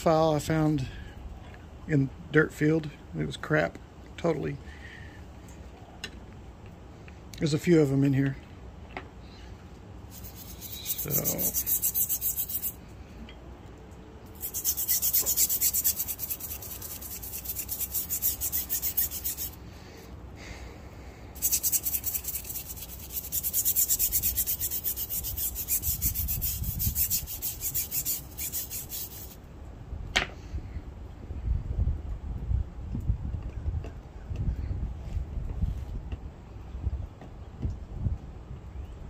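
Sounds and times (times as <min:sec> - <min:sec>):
brush scrubbing metal file: 0:10.1 - 0:12.8, 0:14.4 - 0:19.6, 0:21.4 - 0:29.4.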